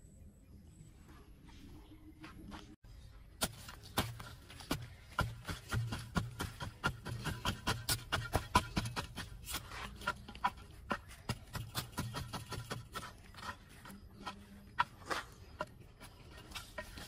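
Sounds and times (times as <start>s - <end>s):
digging tool striking dry soil: 3.4s - 17.0s.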